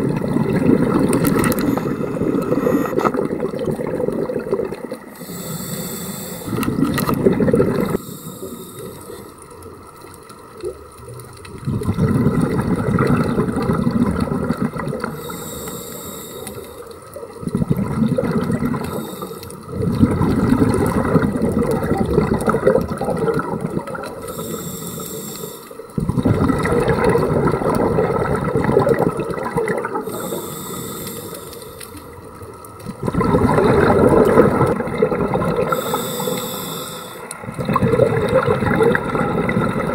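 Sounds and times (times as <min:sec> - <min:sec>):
gurgle of exhaled bubbles: 0:00.0 - 0:05.6, 0:06.4 - 0:09.2, 0:10.4 - 0:15.4, 0:16.6 - 0:24.7, 0:25.9 - 0:39.9
regulator inhale hiss: 0:01.2 - 0:03.2, 0:05.1 - 0:06.9, 0:07.8 - 0:09.6, 0:15.0 - 0:17.0, 0:18.7 - 0:19.7, 0:24.2 - 0:26.0, 0:30.0 - 0:32.2, 0:35.6 - 0:37.5.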